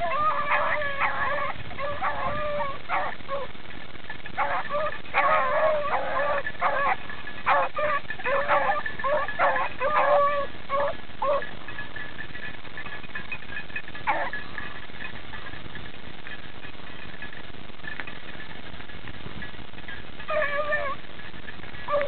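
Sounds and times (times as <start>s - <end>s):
hounds baying: 0.0s - 3.6s, 4.2s - 12.2s, 12.8s - 15.6s, 20.2s - 21.1s, 21.7s - 22.0s.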